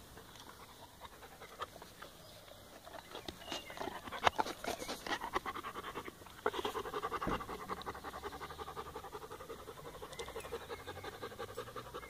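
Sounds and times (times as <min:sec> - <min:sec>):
dog panting rapidly: 0:03.6 - 0:12.0.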